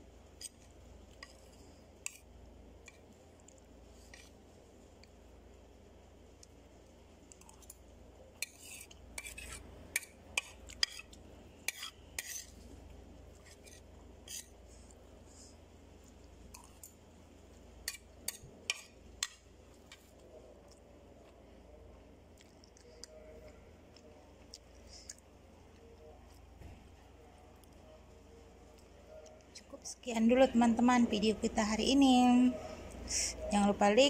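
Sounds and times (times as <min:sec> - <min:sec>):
spoon scraping ceramic plate: 0:08.4 - 0:11.1.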